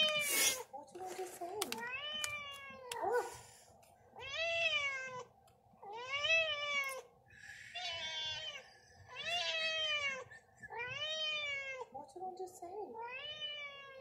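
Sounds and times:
cat meowing: 4.2 - 7.1, 7.8 - 11.9.

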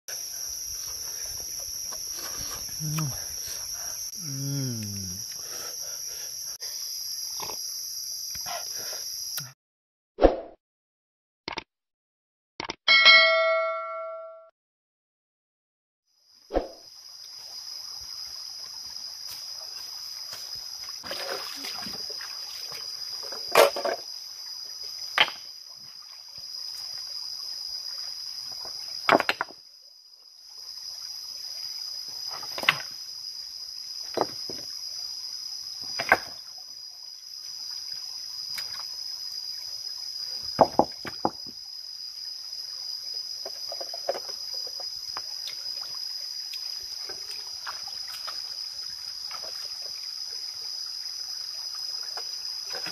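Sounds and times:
insects droning: 0.1 - 9.6, 16.1 - 52.9
feet splashing in stream: 19.4 - 23.0, 47.2 - 48.5
stones knocking: 40.6 - 41.5.

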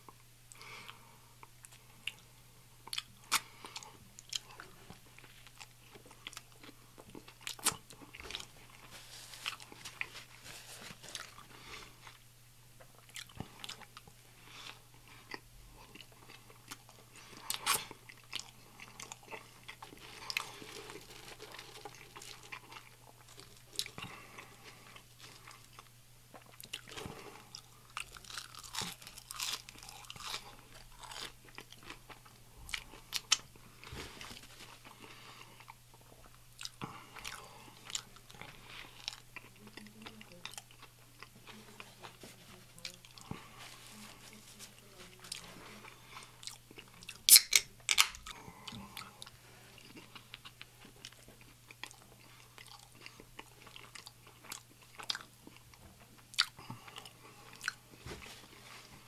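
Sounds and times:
person chewing: 0.0 - 12.2, 12.8 - 59.0
crisp crunches: 19.7 - 25.8.

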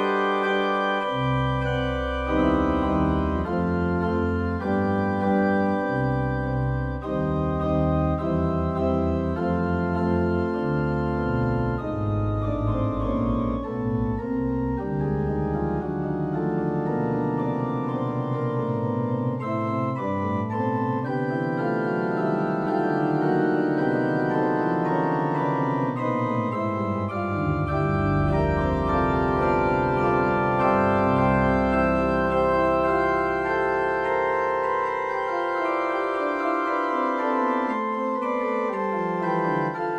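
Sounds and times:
electronic organ chords: 0.0 - 39.9.

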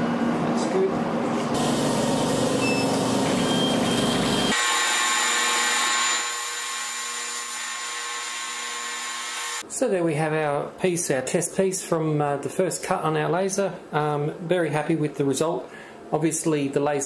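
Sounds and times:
fan and air noise: 0.0 - 3.3
laser machine whine: 1.6 - 7.0.

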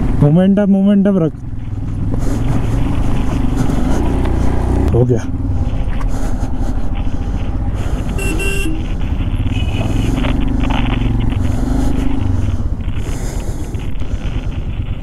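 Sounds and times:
motorcycle engine rumbling: 0.0 - 15.0
horn toots: 8.1 - 10.0.

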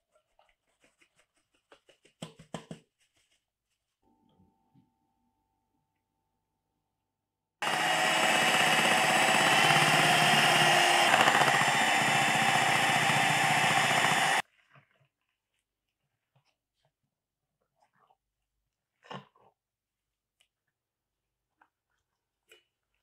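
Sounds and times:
electric hand mixer whisking: 7.6 - 14.4.

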